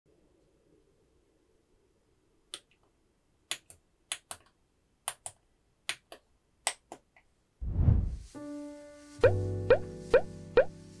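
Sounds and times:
rising whoosh: 0:07.6 - 0:08.3.

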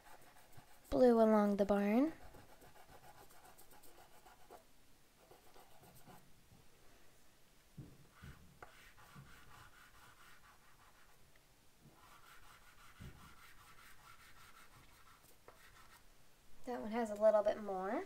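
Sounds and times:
scratchy rubbing on paper: 0:00.0 - 0:01.1, 0:02.1 - 0:04.6, 0:05.2 - 0:06.2, 0:08.1 - 0:11.2, 0:12.0 - 0:16.0
soft knocks: 0:07.8 - 0:08.5.

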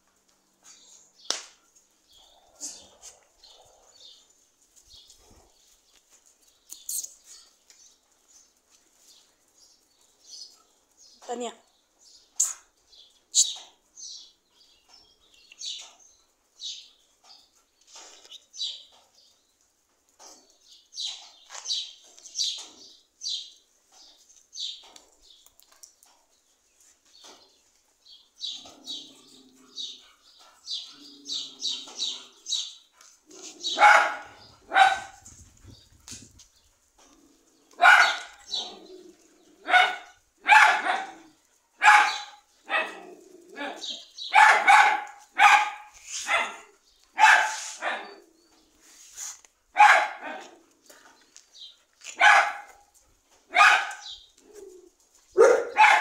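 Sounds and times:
dogs barking: 0:28.6 - 0:35.3, 0:36.8 - 0:48.4, 0:49.7 - 0:50.8, 0:52.0 - 0:56.0.

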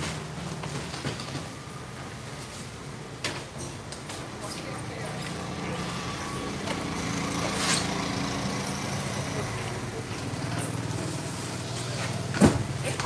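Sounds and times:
people talking: 0:04.3 - 0:07.9
vehicle engine running: 0:05.6 - 0:13.0.

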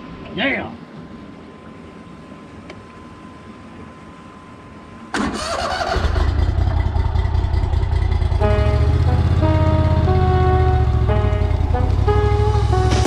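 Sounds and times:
outboard motor running: 0:06.2 - 0:12.3.

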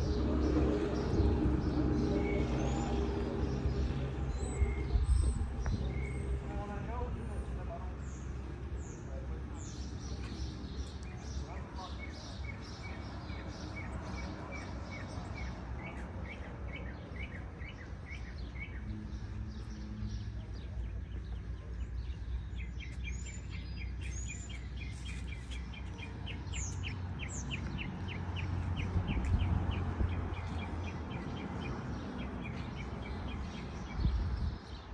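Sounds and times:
birds chirping: 0:00.0 - 0:34.9
high sweeping bird calls: 0:09.0 - 0:34.9.

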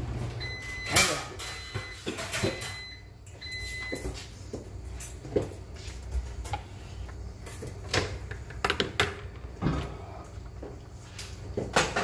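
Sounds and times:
kitchen knocks and clatters: 0:00.7 - 0:06.6, 0:07.4 - 0:10.0, 0:11.4 - 0:12.0.

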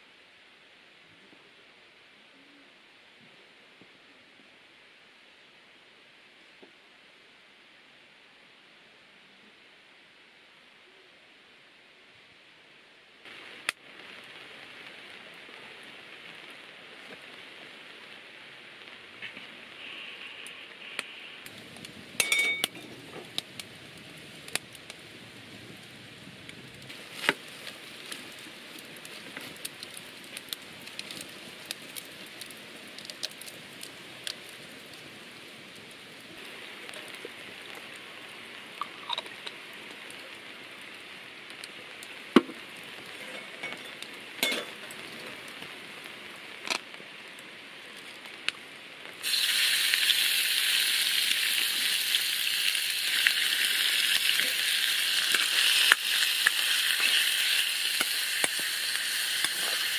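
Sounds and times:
light rain: 0:00.0 - 0:59.9
fire crackle: 0:11.3 - 0:59.9
meat sizzling in a wok: 0:19.8 - 0:47.3, 0:49.1 - 0:59.9.

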